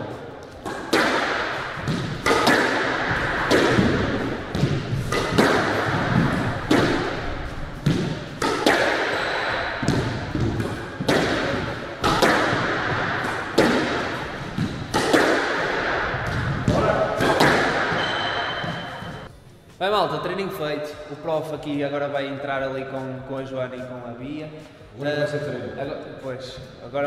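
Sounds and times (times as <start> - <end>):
squash ball hitting rackets and walls: 0.0 - 19.3.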